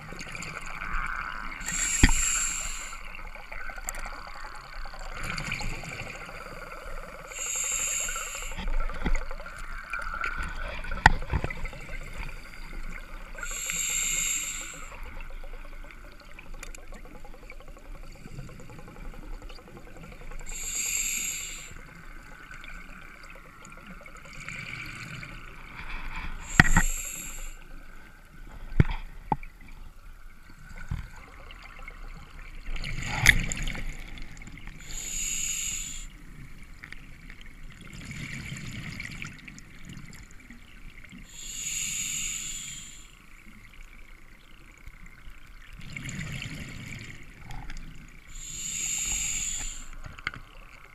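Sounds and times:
exhaled bubbles underwater: 0.0s - 25.7s
hissing regulator breaths: 1.6s - 3.2s, 7.0s - 8.7s, 13.4s - 15.1s, 20.4s - 22.0s, 26.3s - 27.7s, 34.8s - 36.2s, 41.3s - 43.3s, 48.3s - 50.0s.

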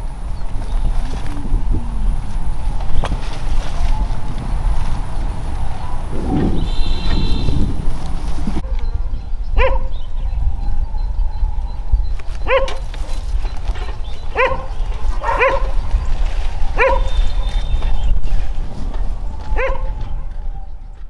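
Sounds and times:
steady low rumble: 0.0s - 12.6s
dog barking: 9.6s - 10.0s, 12.4s - 12.8s, 13.8s - 15.8s, 16.8s - 17.2s, 19.6s - 20.0s.

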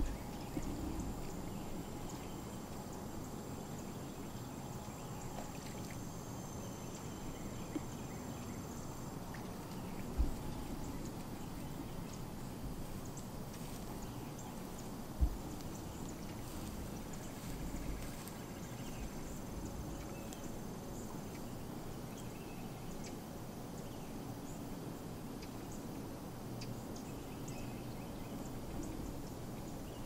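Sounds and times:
faint high-pitched whine: 0.0s - 30.0s
rustling hiss: 0.0s - 30.0s
short low thumps: 15.2s - 15.4s.

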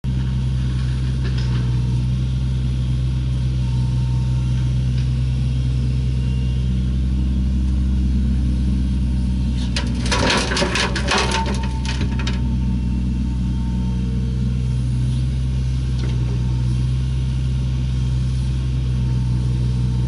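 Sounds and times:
excavator diesel engine: 0.1s - 20.0s
clattering and crunching rocks: 9.6s - 12.4s.

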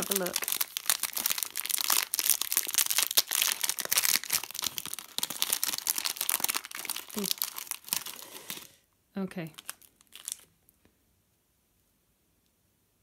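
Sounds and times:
plastic packet crinkling and tearing: 0.0s - 8.8s, 9.4s - 10.7s.

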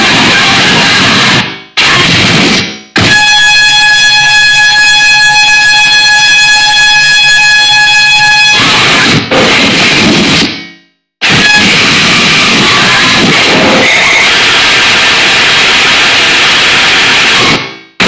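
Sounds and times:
harsh digital noise: 0.0s - 4.3s, 8.2s - 18.0s
buzzing drone: 11.2s - 17.6s.

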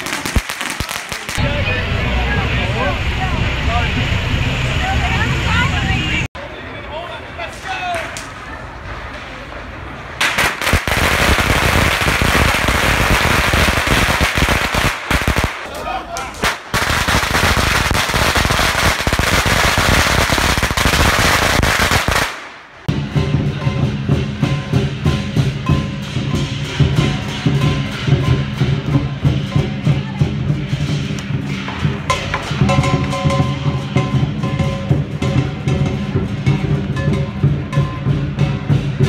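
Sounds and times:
firecrackers crackling: 0.0s - 6.3s, 7.5s - 23.2s
drum percussion music: 22.8s - 39.0s.

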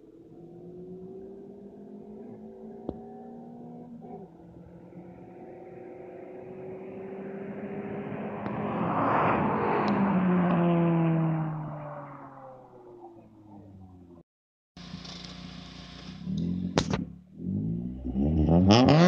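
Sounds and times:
racing car engines passing: 0.0s - 14.2s
road noise: 0.0s - 14.2s, 14.8s - 19.0s.

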